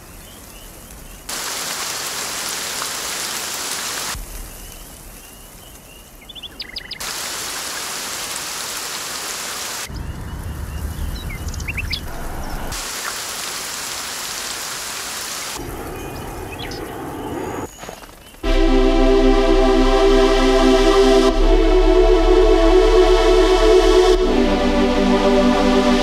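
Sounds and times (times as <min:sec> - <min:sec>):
rain falling: 0:00.0 - 0:17.0
low thunder rumble: 0:09.9 - 0:12.8.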